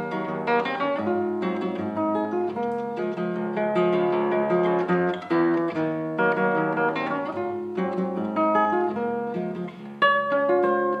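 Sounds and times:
plucked string melody: 0:00.0 - 0:11.0.

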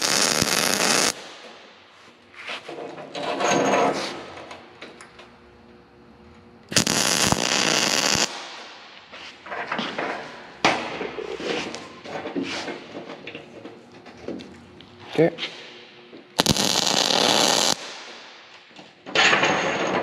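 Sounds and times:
welder crackling: 0:00.0 - 0:01.7, 0:06.7 - 0:09.1, 0:16.4 - 0:18.5.

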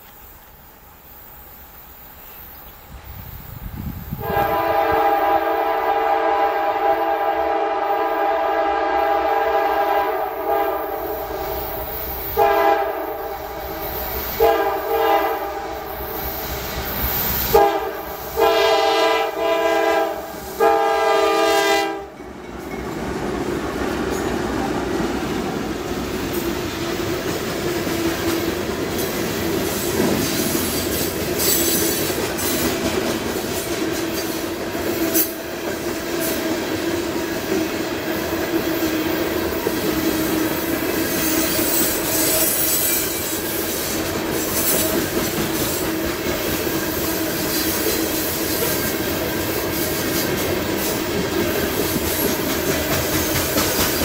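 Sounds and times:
train cars rumbling and clattering: 0:00.0 - 0:54.0
locomotive air horn blasts: 0:04.2 - 0:16.2, 0:17.5 - 0:22.2.

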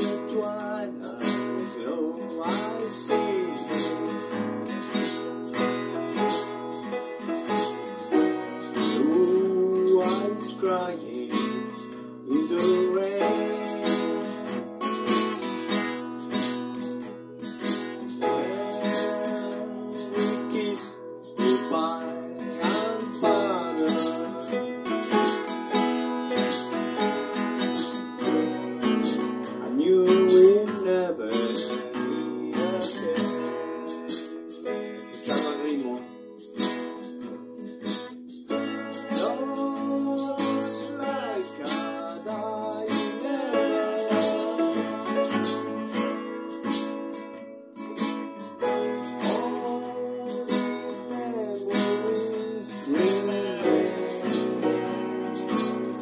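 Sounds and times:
man singing into a microphone: 0:00.0 - 0:05.0, 0:08.7 - 0:14.5, 0:18.1 - 0:25.8, 0:29.5 - 0:37.4, 0:39.1 - 0:45.7, 0:48.4 - 0:56.0
strummed acoustic guitar: 0:00.0 - 0:56.0.

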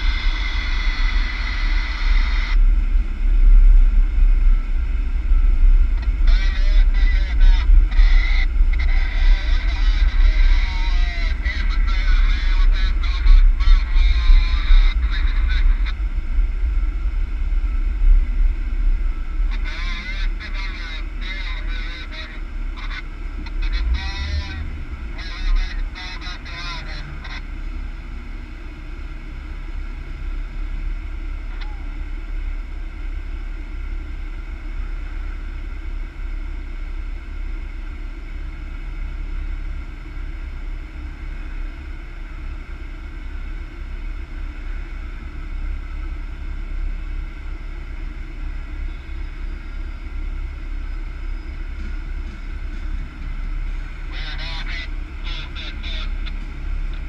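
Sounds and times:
vehicle engine and tyre rumble: 0:00.0 - 0:57.0.

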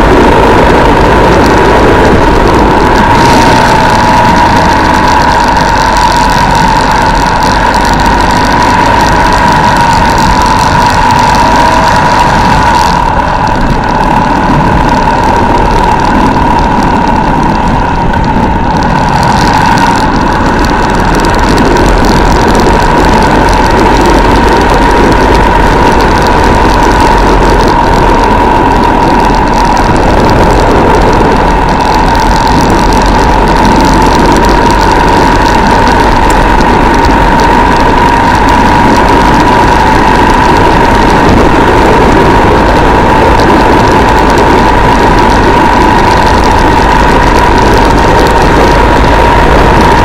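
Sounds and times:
motorcycle engine running: 0:00.0 - 0:50.0
wind and road noise: 0:00.0 - 0:50.0.

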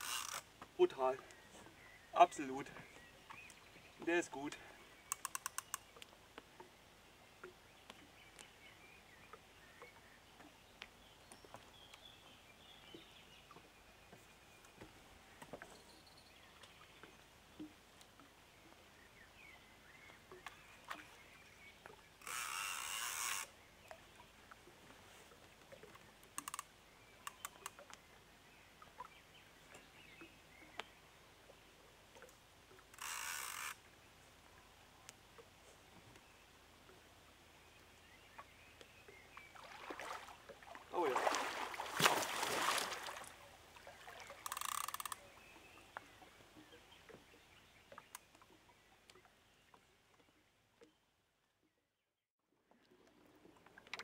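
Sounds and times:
faint clicks and knocks: 0:05.1 - 0:06.7, 0:21.8 - 0:28.0, 0:44.3 - 0:45.2, 0:52.7 - 0:54.0.

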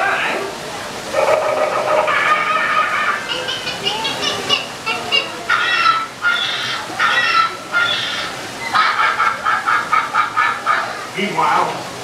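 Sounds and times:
recorded bird squawks and screeches: 0:05.5 - 0:08.9.

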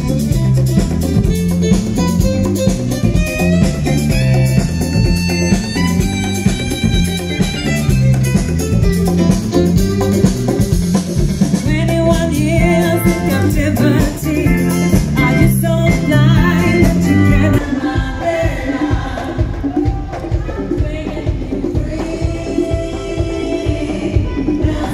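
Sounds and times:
rock band playing: 0:00.0 - 0:18.2
woman singing: 0:11.6 - 0:24.9.

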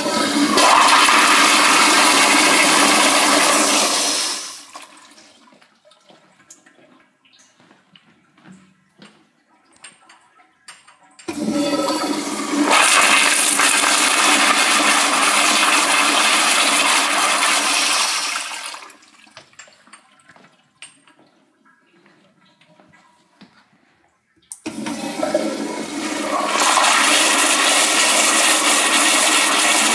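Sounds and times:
toilet flushing: 0:00.0 - 0:05.5, 0:11.3 - 0:19.4, 0:24.6 - 0:29.9
water trickle: 0:05.1 - 0:11.3, 0:19.0 - 0:23.4.

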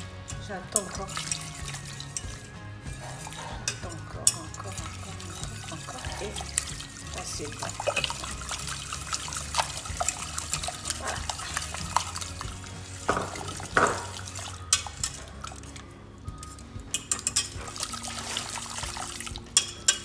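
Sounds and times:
whisk clicking in metal pan: 0:00.0 - 0:15.8, 0:16.5 - 0:20.0
loud knocks on pan: 0:13.1 - 0:14.1.

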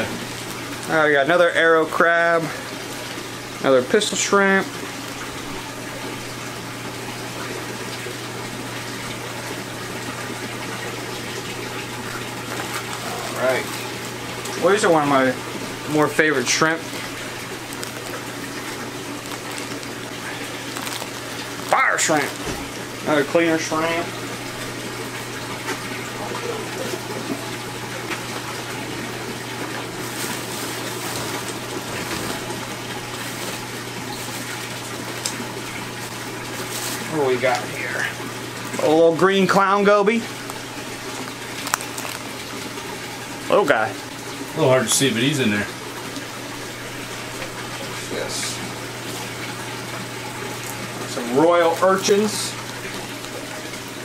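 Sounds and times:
pump motors humming: 0:00.0 - 0:54.0
running water from aquarium filter: 0:00.0 - 0:54.0
plastic bags crinkling: 0:16.9 - 0:23.0, 0:30.0 - 0:35.4, 0:36.4 - 0:37.2, 0:40.4 - 0:42.7.

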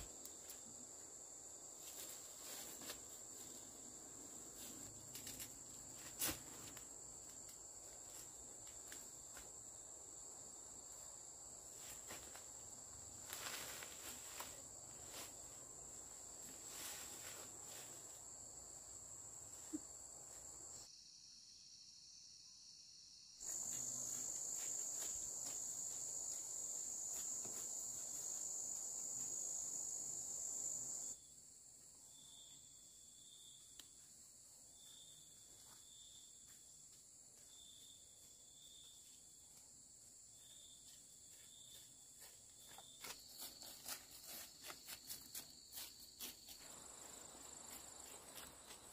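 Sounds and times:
insects trilling: 0:00.0 - 0:31.3
insect chirping in pulses: 0:17.7 - 0:31.3.

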